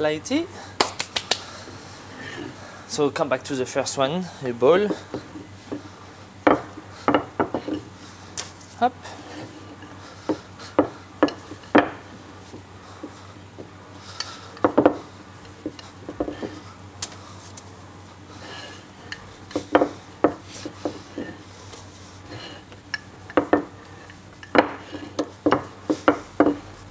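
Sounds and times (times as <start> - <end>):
rolling pin knocking on wood: 6.4 - 7.8, 10.3 - 12.0, 14.6 - 15.0, 19.5 - 21.3, 23.3 - 23.7, 24.5 - 26.7.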